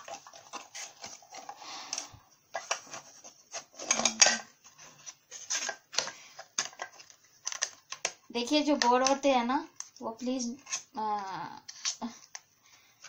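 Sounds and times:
plastic gadget clattering: 3.8s - 4.5s.

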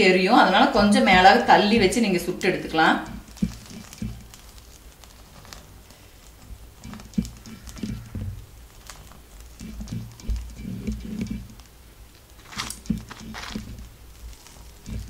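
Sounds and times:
papadum crackling: 0.0s - 15.0s
dull thumps: 3.0s - 4.6s.

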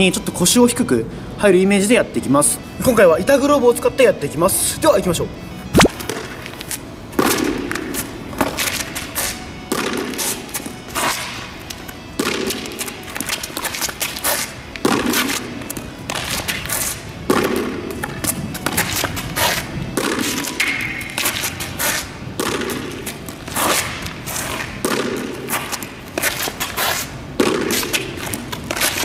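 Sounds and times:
shuffling footsteps: 5.7s - 29.0s
ball bouncing on asphalt: 5.8s - 9.0s, 9.7s - 10.6s, 12.2s - 21.8s, 22.4s - 26.8s, 27.4s - 29.0s.

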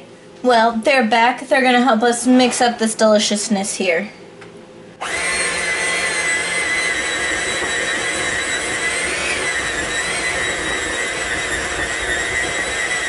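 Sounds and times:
electric hand mixer whining: 5.0s - 13.0s.

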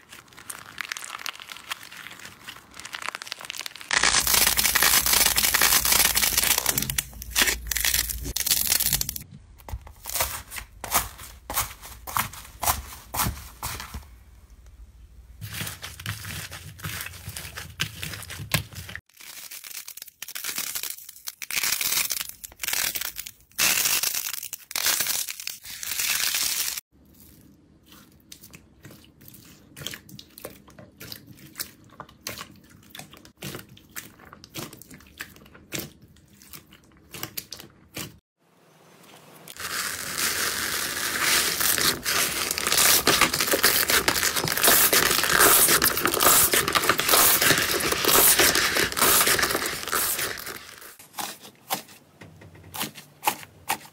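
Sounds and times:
slime crackling and popping: 0.0s - 9.3s, 39.5s - 51.0s.

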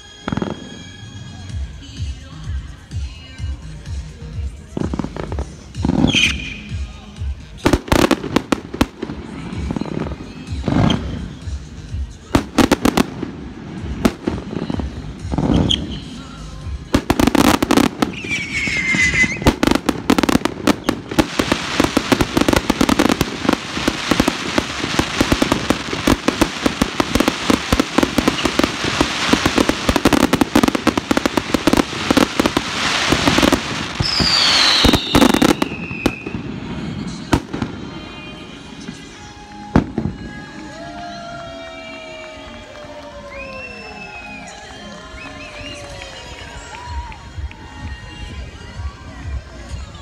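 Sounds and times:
firework falling whistle: 0.0s - 1.5s, 6.0s - 6.7s, 14.6s - 16.2s, 17.2s - 46.6s
firework bangs and crackling: 0.0s - 50.0s.

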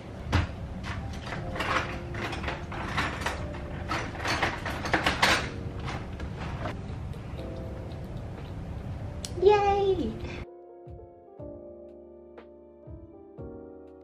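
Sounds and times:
steady low hum: 5.5s - 9.4s.

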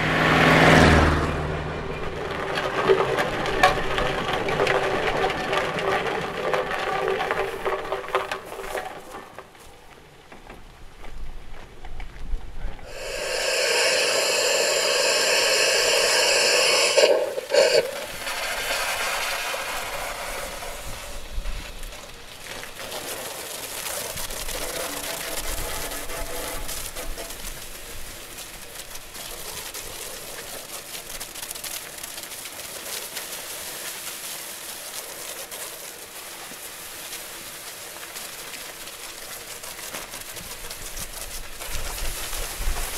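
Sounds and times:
hose spray hissing: 12.8s - 21.9s.

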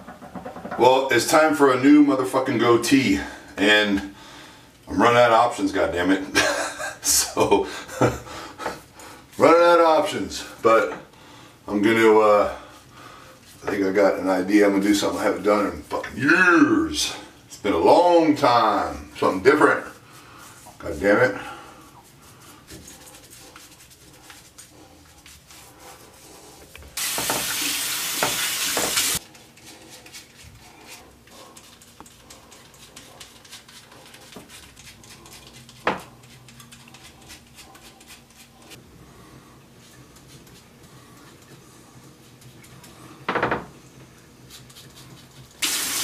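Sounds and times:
tap running: 26.8s - 29.2s.

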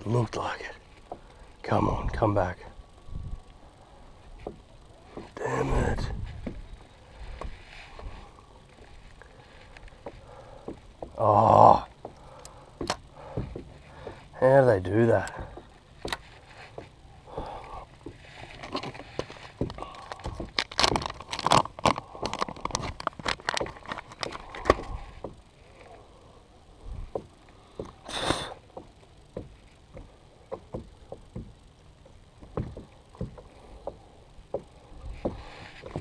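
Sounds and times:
fishing tackle clicks and knocks: 15.2s - 25.9s.

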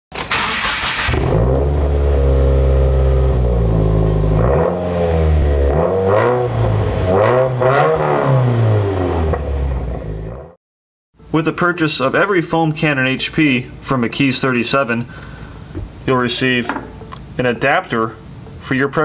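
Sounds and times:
car engine revving: 0.3s - 10.6s.

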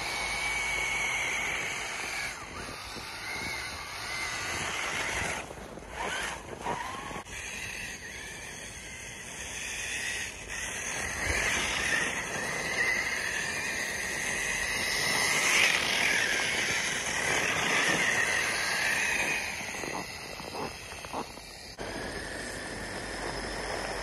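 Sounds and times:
toy car motor whine: 0.0s - 24.0s.

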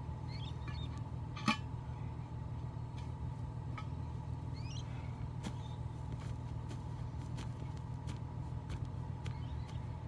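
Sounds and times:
bird chirp: 0.2s - 1.1s, 4.0s - 6.2s, 9.1s - 10.0s.

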